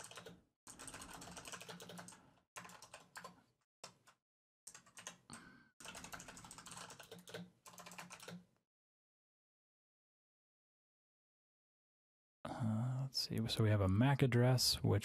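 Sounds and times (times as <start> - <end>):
typing on computer keyboard: 0.0 - 8.5.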